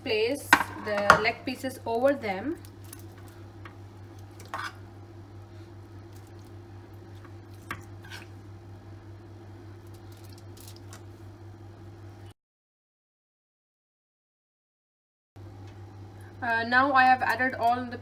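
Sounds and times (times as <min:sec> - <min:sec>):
steady low hum: 0:00.0 - 0:12.4, 0:15.4 - 0:18.0
food squishing on tray: 0:02.6 - 0:04.8, 0:06.0 - 0:08.4, 0:09.8 - 0:11.2
foil crinkling: 0:09.8 - 0:11.2.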